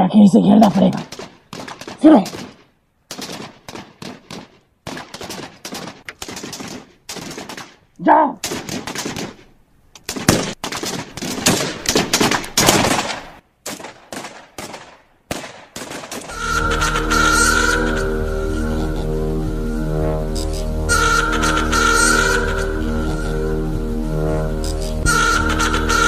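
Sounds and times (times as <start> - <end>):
rapid gunfire: 1.0 - 7.8, 8.4 - 9.4, 10.1 - 16.3
music with droning chord: 16.3 - 26.0.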